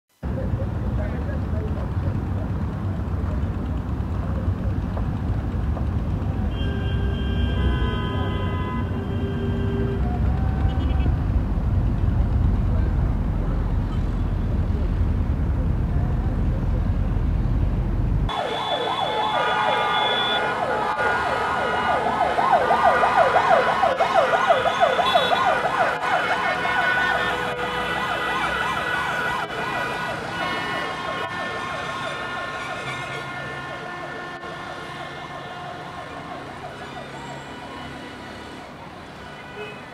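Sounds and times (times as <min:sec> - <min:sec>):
vehicle siren warbling: 0:18.3 - 0:38.6.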